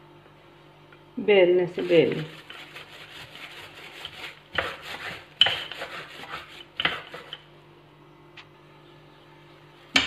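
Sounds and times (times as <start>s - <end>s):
rolling pin rolling over dough: 1.7s - 7.5s.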